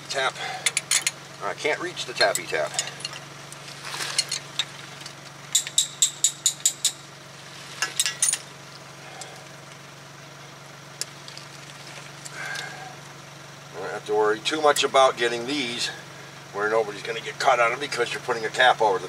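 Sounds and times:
steady low hum: 0:00.0 - 0:19.0
metal tool tapping: 0:05.5 - 0:07.0.

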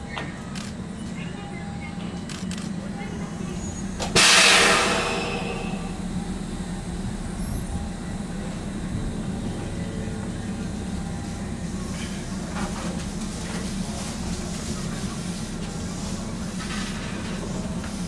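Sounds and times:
train equipment humming: 0:00.0 - 0:18.0
compressed air hiss: 0:04.2 - 0:05.9.

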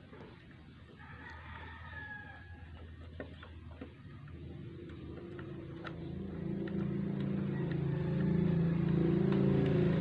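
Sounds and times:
vehicle engine running: 0:03.7 - 0:10.0.

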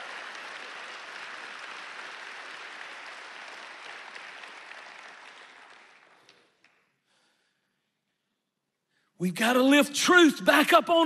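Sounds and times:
congregation applauding: 0:00.0 - 0:06.9.

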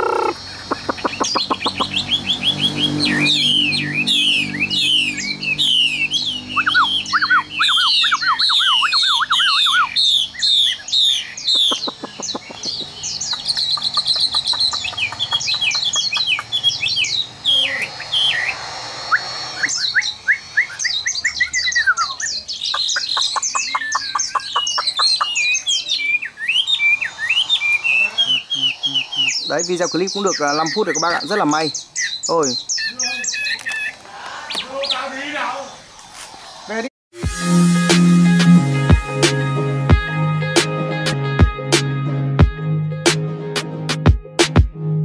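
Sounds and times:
bird singing whistled phrases: 0:00.0 - 0:35.8.

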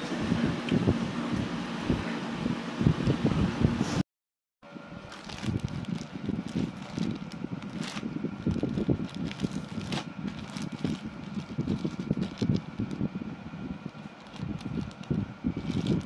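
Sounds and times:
faint steady hum: 0:04.7 - 0:16.0
plastic bag crinkling: 0:05.0 - 0:13.1, 0:13.8 - 0:16.0.

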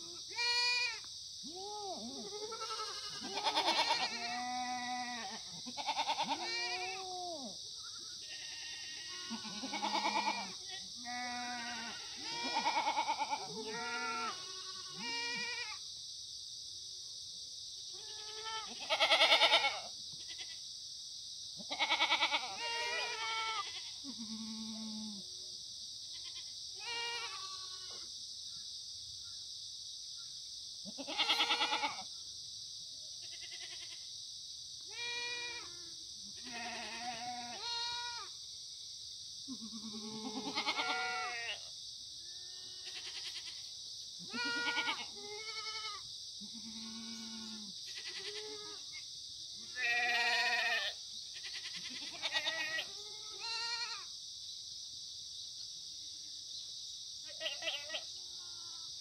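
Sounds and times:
goats bleating: 0:02.2 - 0:07.0, 0:08.2 - 0:15.8, 0:18.0 - 0:20.5, 0:21.7 - 0:25.1, 0:26.2 - 0:28.0, 0:30.9 - 0:32.0, 0:36.4 - 0:38.3, 0:39.5 - 0:41.6, 0:42.6 - 0:43.6, 0:44.3 - 0:48.8, 0:49.7 - 0:54.0, 0:57.4 - 0:58.0.

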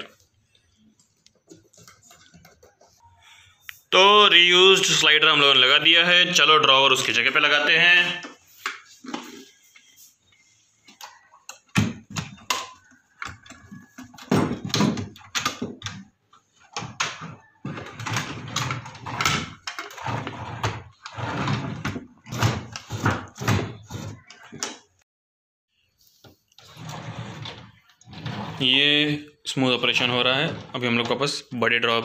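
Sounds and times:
drawer rolling in and out: 0:11.8 - 0:24.8, 0:26.6 - 0:28.9, 0:30.0 - 0:31.2.

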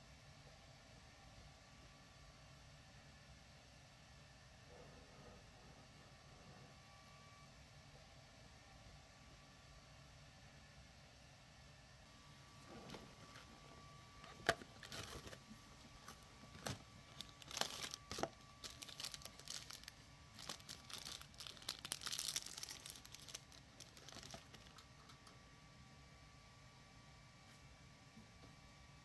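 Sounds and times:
foil sachet crinkling and tearing: 0:14.3 - 0:15.4, 0:16.0 - 0:24.8.

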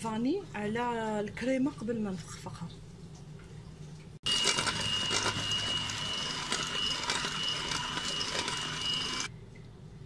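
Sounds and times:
electric hand mixer whirring: 0:04.2 - 0:09.3.

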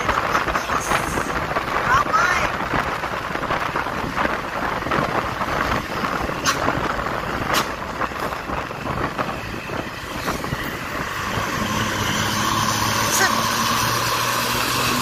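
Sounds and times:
wind buffeting the microphone: 0:00.0 - 0:12.2
road traffic rushing: 0:00.0 - 0:15.0.

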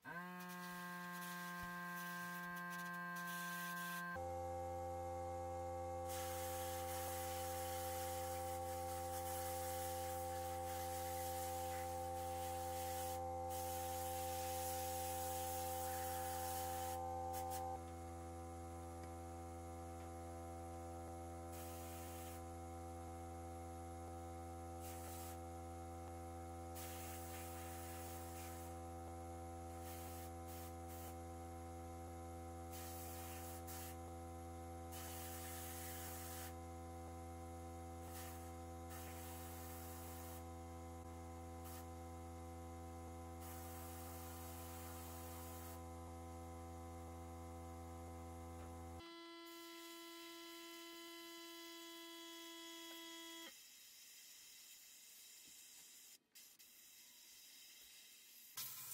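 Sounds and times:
steady low hum: 0:02.3 - 0:22.5.

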